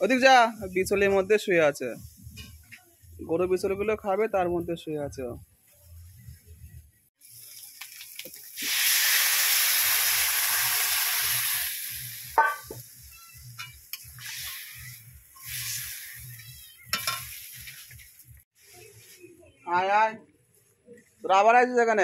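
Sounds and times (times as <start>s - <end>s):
potatoes sizzling in hot oil: 7.2s - 18.4s
metal ladle clinking on pan: 16.9s - 17.4s.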